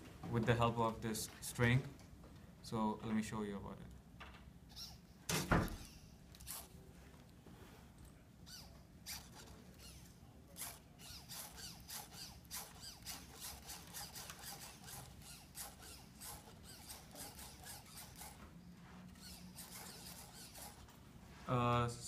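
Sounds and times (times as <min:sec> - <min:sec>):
servo motors whirring: 0:04.7 - 0:06.8, 0:08.5 - 0:21.0.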